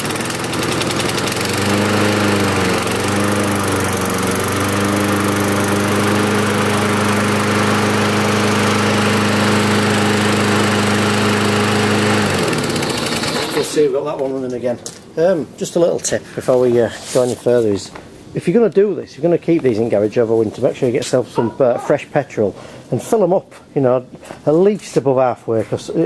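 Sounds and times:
lawnmower engine running: 0:00.0 - 0:13.8.

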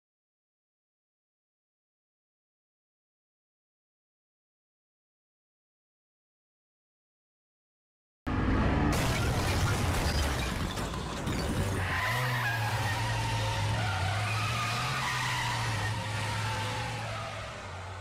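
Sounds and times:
tyres skidding: 0:08.4 - 0:18.0.

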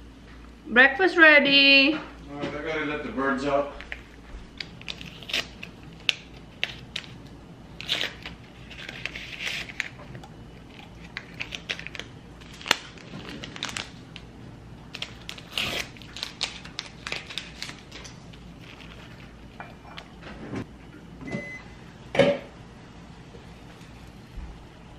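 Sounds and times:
paper wrapper tearing and crinkling: 0:04.6 - 0:07.2, 0:07.8 - 0:14.2, 0:14.9 - 0:19.4.

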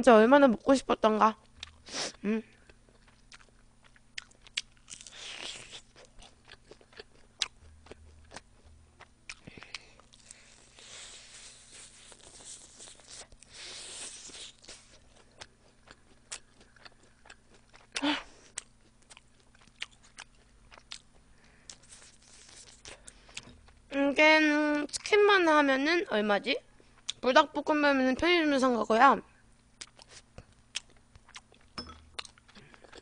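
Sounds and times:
wet chewing: 0:01.4 - 0:23.8, 0:29.8 - 0:33.0
crunchy bites of fried chicken: 0:04.2 - 0:08.4.

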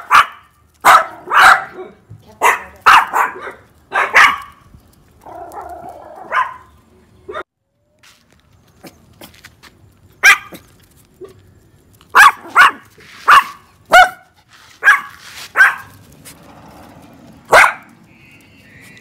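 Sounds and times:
small dogs barking: 0:00.0 - 0:04.6, 0:05.2 - 0:07.5, 0:10.2 - 0:11.4, 0:12.1 - 0:16.1, 0:17.4 - 0:18.0.

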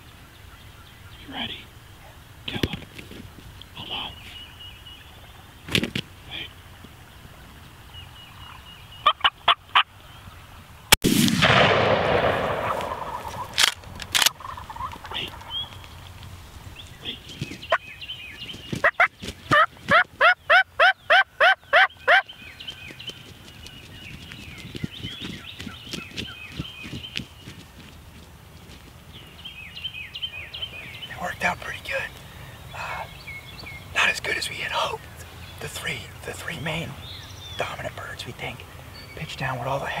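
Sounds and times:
wild turkeys calling: 0:03.6 - 0:10.0, 0:12.2 - 0:26.8, 0:29.3 - 0:40.0
loud bang with rumble: 0:11.0 - 0:13.2.

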